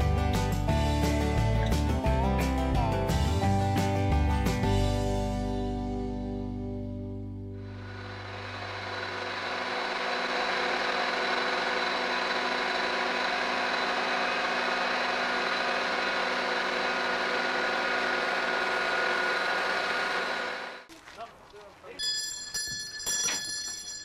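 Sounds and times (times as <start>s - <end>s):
background music: 0.0s - 8.1s
thin high whine: 7.6s - 9.9s
crane engine running: 7.6s - 20.9s.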